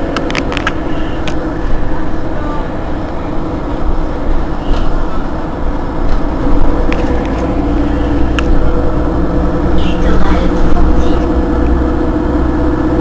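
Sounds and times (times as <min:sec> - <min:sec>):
bus engine idling: 0:00.0 - 0:13.0.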